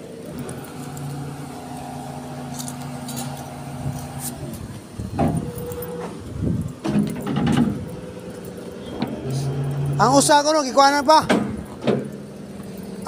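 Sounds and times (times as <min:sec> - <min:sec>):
hydraulic system humming: 0:00.0 - 0:13.0
metallic rattles and clanks: 0:02.5 - 0:13.0.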